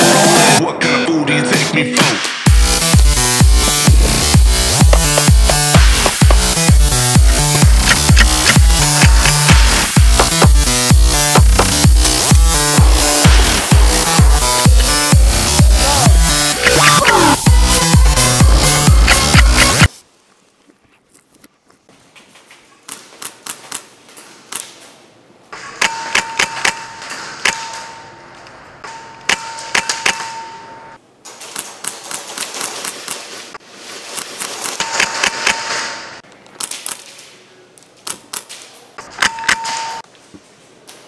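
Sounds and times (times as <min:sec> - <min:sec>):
steady high tone: 0:02.5 - 0:19.9.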